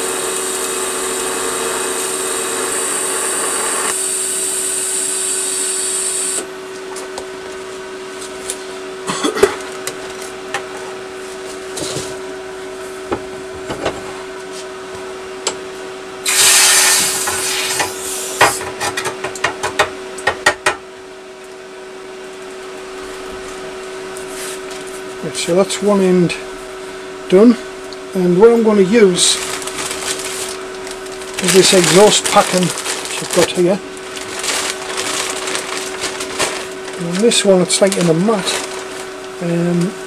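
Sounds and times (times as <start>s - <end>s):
welding hiss and buzz: 0.0s - 6.6s, 16.2s - 18.9s, 28.6s - 40.0s
machine hum: 0.0s - 40.0s.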